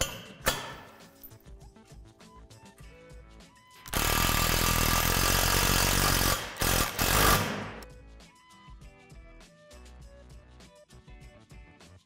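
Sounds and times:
impact driver running bolts: 3.9 - 7.8.

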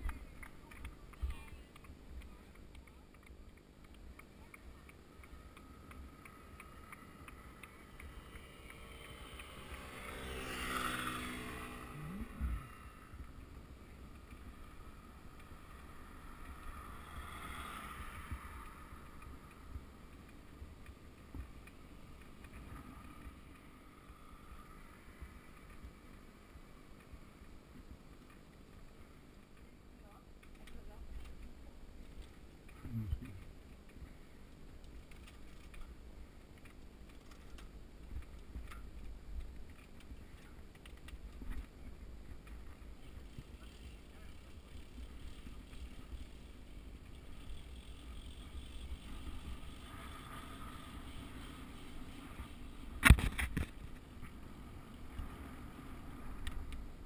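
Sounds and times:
motor vehicle passing: 5.2 - 20.3, 43.6 - 53.0.

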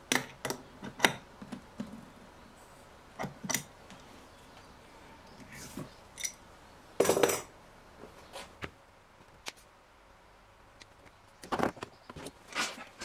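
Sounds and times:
tools clattering on wooden bench: 7.0 - 7.5.

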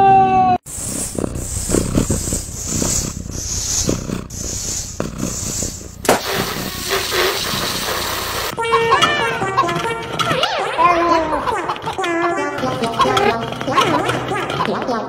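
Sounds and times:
air hissing into balloon: 0.6 - 8.6
balloon popping: 0.7 - 14.8.

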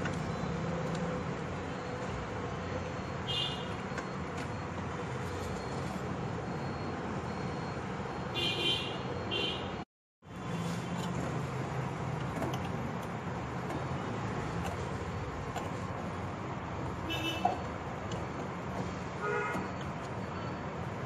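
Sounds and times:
background traffic noise: 0.0 - 21.0
car horn toots: 19.2 - 19.7.

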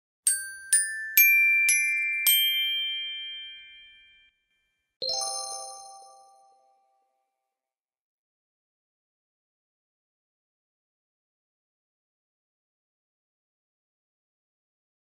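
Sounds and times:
chime-like jingle notes: 0.3 - 4.4, 5.0 - 7.1.

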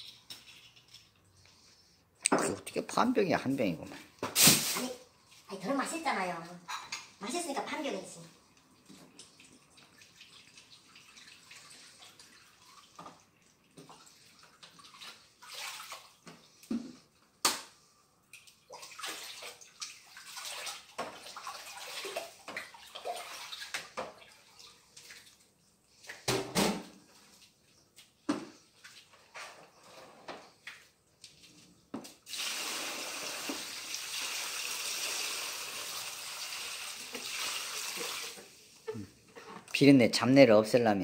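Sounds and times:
water sloshing in plastic basin: 8.7 - 32.3.

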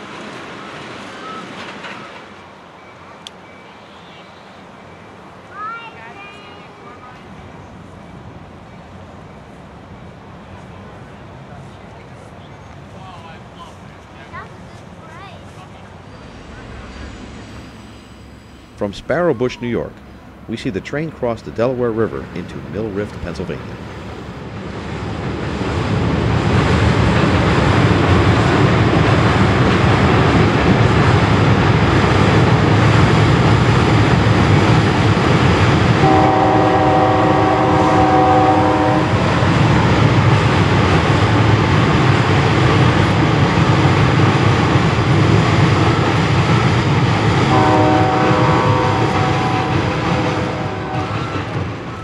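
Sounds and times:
train rumbling across a bridge: 0.0 - 52.0
train air horn blasts: 36.0 - 39.2, 47.5 - 51.4.

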